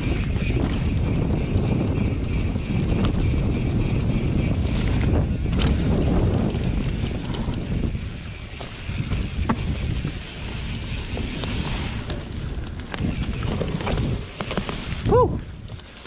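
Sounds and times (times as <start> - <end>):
bike clicks and rattles: 0.0 - 16.0
wind buffeting microphone: 0.0 - 16.0
tyres rolling over dirt: 4.3 - 16.0.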